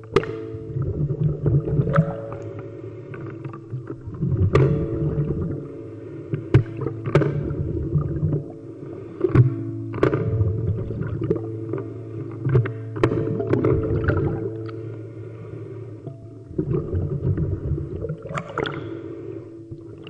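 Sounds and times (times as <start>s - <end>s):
sharp underwater clicks and knocks: 0.0s - 5.6s, 6.3s - 8.5s, 9.2s - 14.8s
muffled underwater churning rumble: 0.0s - 20.0s
steady held tones: 0.0s - 20.0s.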